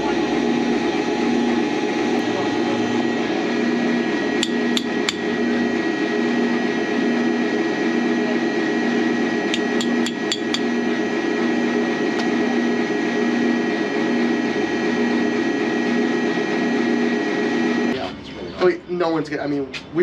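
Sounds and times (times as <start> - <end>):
machine hum with pulsing tone: 0.0 - 18.4
hammer tapping on steel: 4.4 - 5.2.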